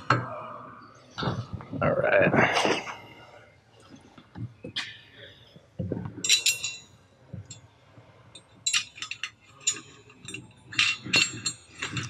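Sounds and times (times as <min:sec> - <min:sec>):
metal hardware clinking: 0:06.2 - 0:07.6, 0:08.3 - 0:12.0.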